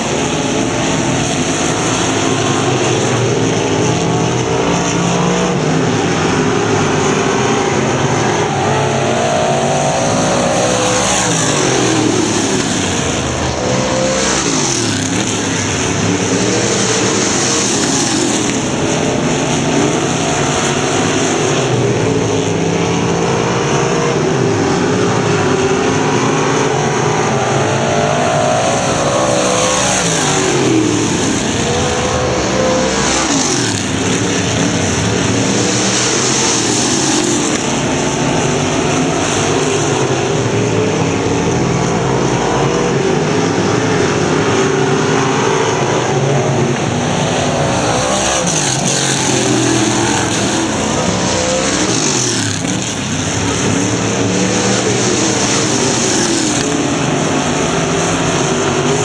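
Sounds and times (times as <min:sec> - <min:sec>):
stock car engines racing: 0:00.0 - 0:59.0.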